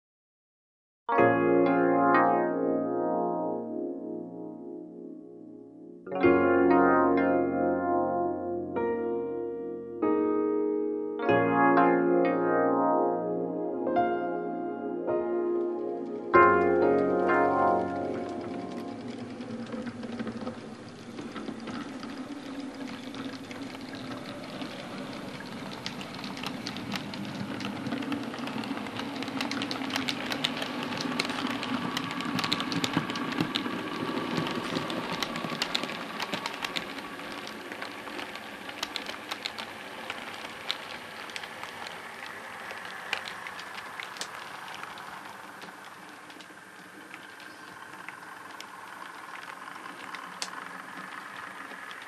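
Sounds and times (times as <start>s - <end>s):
wheels clicking over rail joints: 15.6s - 52.0s
model train motor whirr: 19.1s - 52.0s.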